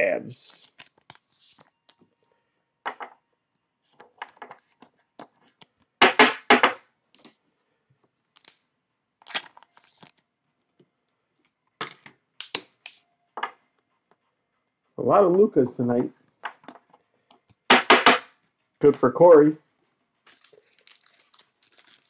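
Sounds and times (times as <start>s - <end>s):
cards crinkling and tapping: 0.6s - 2.1s, 3.9s - 7.4s, 8.2s - 8.6s, 9.2s - 10.2s, 20.2s - 22.0s.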